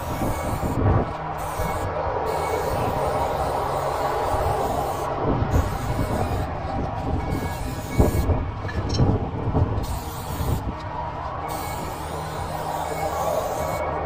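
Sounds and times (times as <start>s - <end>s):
aerosol spray can hissing: 9.8s - 10.6s.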